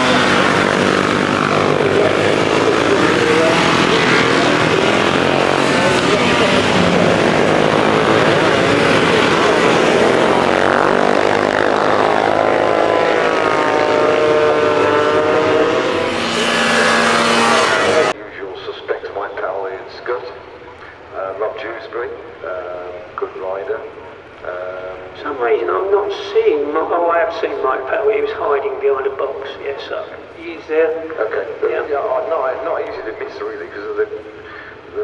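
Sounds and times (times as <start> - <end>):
racing engines passing: 0.0 - 18.2.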